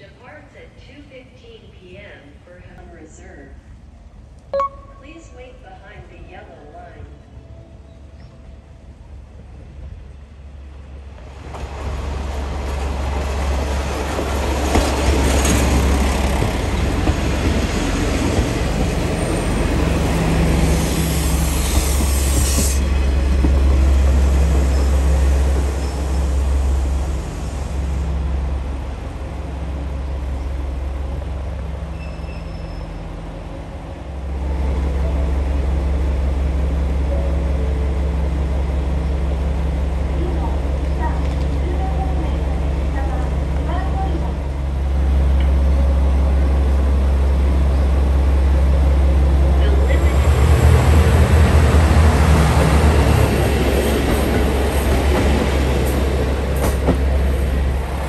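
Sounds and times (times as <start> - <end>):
diesel train engine rumble: 0.0 - 58.0
high wheel squeal: 31.9 - 33.1.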